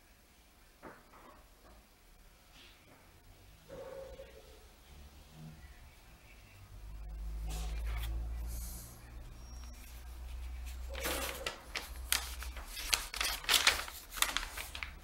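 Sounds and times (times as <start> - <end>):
paper crinkling and rustling: 9.6 - 15.0.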